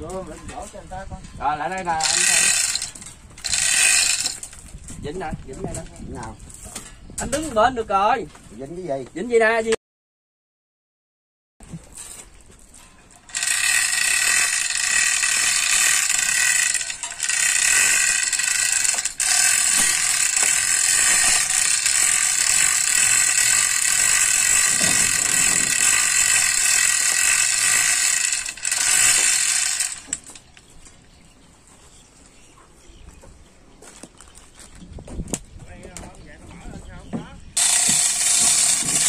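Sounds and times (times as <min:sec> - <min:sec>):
chain hoist ratcheting clatter: 0:01.7 - 0:04.8, 0:13.1 - 0:30.5, 0:37.6 - 0:39.0.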